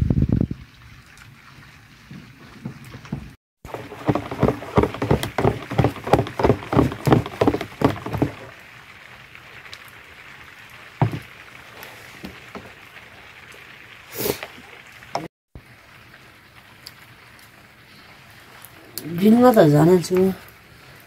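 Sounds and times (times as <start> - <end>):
soft knocks: 2.6 - 8.5, 11.0 - 11.3
liquid splashing in hand churn: 2.6 - 8.6.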